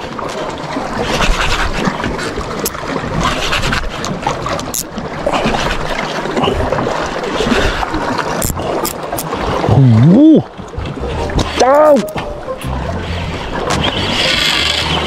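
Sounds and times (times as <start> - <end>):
water moving around boat: 0.0 - 15.0.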